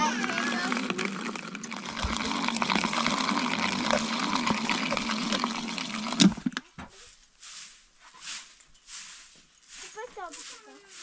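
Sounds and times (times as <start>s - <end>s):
liquid churning and sloshing: 0.0s - 6.7s
mixing jar gears whirring: 0.0s - 6.7s.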